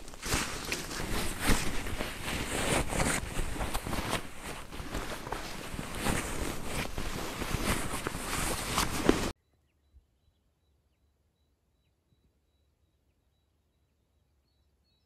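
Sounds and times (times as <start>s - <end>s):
small clicks and crackles: 0.0s - 9.3s
wind noise and rustling: 0.0s - 9.3s.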